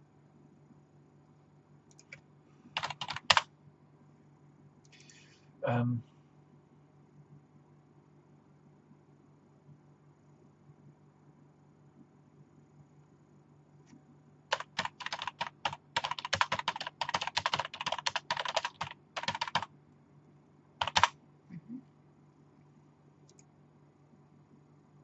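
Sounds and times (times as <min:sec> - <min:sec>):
typing on computer keyboard: 0:02.8 - 0:03.5, 0:14.5 - 0:19.7, 0:20.8 - 0:21.2.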